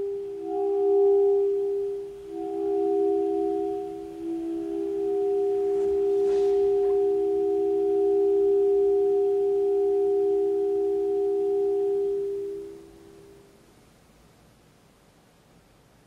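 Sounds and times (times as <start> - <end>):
saxophone holding soft notes: 2.3 - 8.8.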